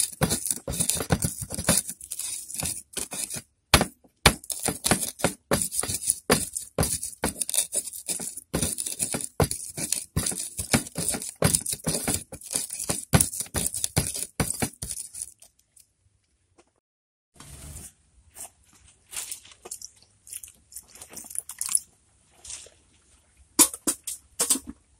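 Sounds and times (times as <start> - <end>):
stone pestle pounding in mortar: 0.0 - 15.3.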